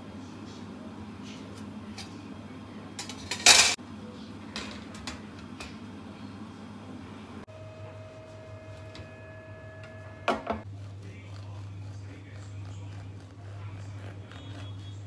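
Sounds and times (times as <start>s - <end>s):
steady low hum: 0.0s - 15.0s
metal pan clattering: 3.0s - 3.8s.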